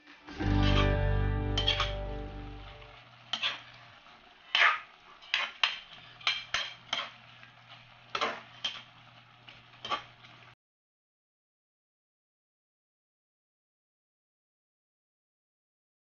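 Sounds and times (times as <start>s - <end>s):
faint steady hum: 0.0s - 5.2s
spatula scraping a wok: 0.3s - 10.5s.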